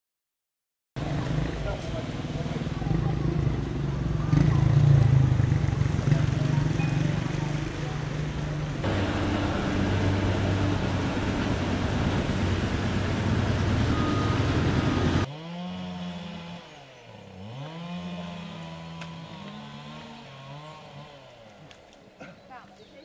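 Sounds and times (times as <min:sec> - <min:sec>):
loud engine running: 0:01.0 - 0:21.7
quieter engine changing pitch: 0:02.4 - 0:15.4.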